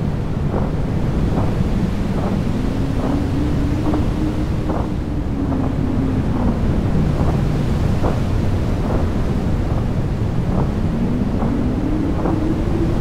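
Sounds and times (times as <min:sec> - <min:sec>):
howling synthesized wind: 0:00.0 - 0:13.0.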